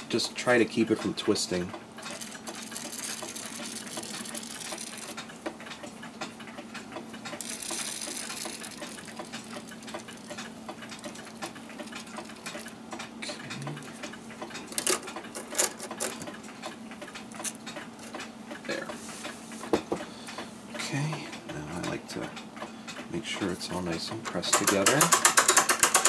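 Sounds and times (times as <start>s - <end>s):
steady low hum: 0.0s - 24.4s
ratchet clicking: 2.0s - 5.8s, 7.3s - 13.1s, 24.5s - 26.0s
louder metallic clicks: 24.5s - 26.0s.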